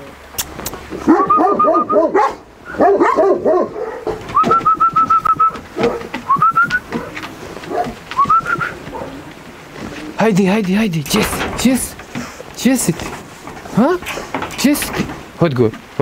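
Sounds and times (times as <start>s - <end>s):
dog whining and yelping: 0.5s - 6.1s.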